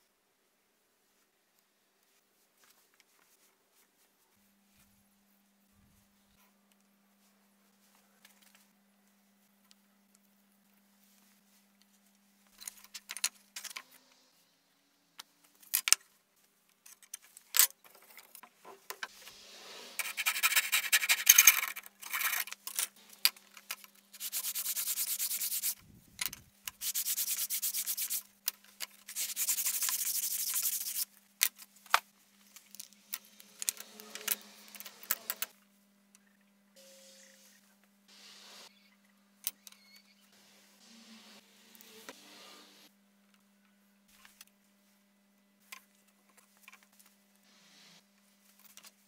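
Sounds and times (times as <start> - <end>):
hand sanding wood: 19.1 - 21.3, 24.1 - 25.8, 26.8 - 28.2, 29.1 - 31.1.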